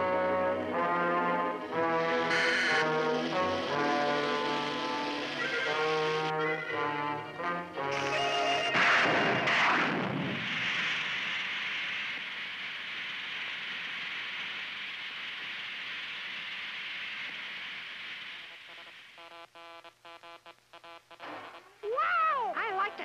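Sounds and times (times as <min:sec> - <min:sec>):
rocket exhaust hiss: 0:00.0 - 0:06.4, 0:08.0 - 0:19.2
cartoon rocket blasting off: 0:08.0 - 0:13.1.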